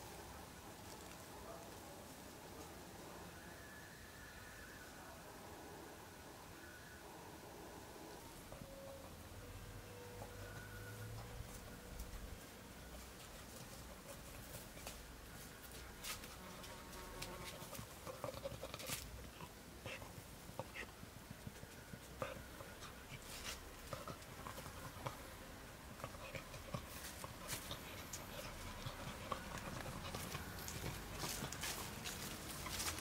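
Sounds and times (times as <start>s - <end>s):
dog rustling through plants: 22.8s - 25.1s, 25.9s - 33.0s.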